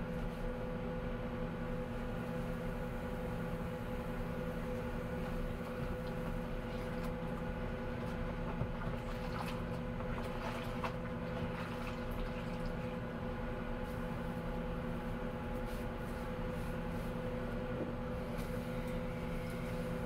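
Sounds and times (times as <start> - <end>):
microwave oven humming: 0.0 - 20.0
water splashing in sink: 8.0 - 13.0.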